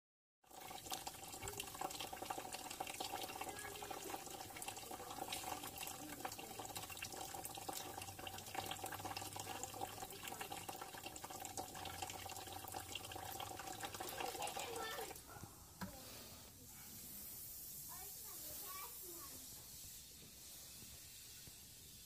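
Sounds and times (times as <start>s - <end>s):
liquid splashing into a bucket: 0.5s - 16.0s.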